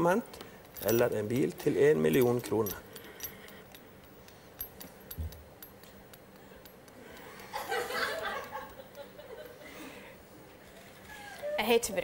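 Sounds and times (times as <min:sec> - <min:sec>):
keys jingling: 0:00.3 - 0:06.9
people laughing: 0:07.3 - 0:10.0.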